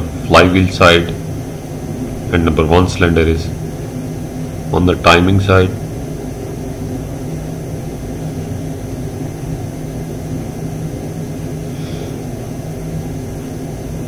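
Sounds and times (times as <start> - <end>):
machinery drone: 0.0 - 14.0.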